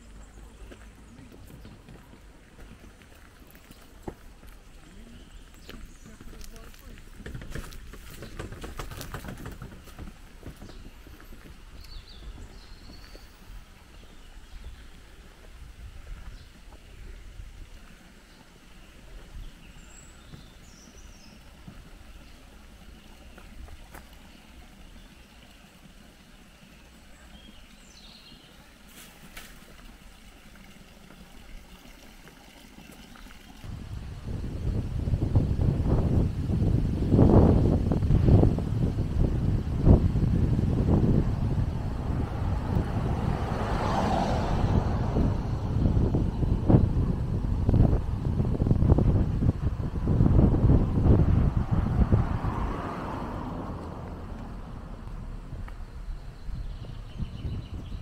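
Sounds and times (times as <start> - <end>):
low steady rumble: 33.7 - 58.0.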